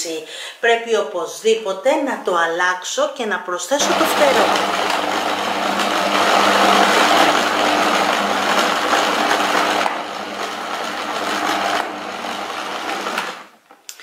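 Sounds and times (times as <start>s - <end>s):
stand mixer churning dough: 3.8s - 13.4s.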